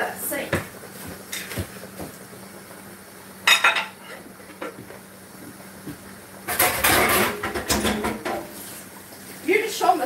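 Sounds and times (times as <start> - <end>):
pots and dishes clattering: 3.4 - 4.8, 6.4 - 8.7.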